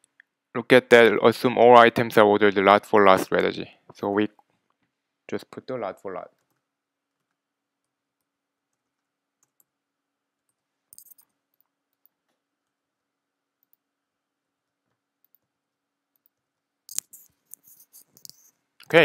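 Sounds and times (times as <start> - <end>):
keyboard and mouse clicks: 6.4 - 9.7, 10.4 - 12.8, 14.9 - 15.5, 16.1 - 18.5.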